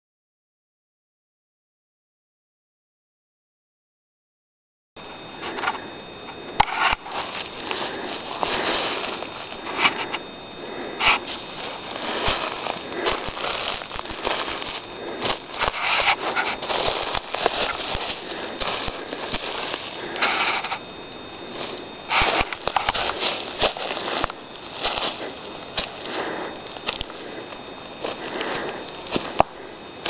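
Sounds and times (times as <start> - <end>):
footsteps crunching through dry leaves: 6.4 - 30.0
twigs snapping: 11.0 - 29.6.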